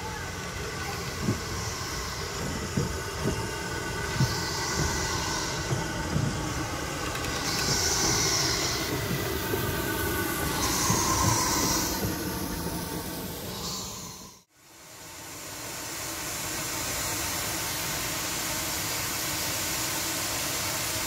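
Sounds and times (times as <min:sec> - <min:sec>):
steam locomotive knocks and clanks: 0:00.0 - 0:14.2
steam hissing: 0:00.0 - 0:21.0.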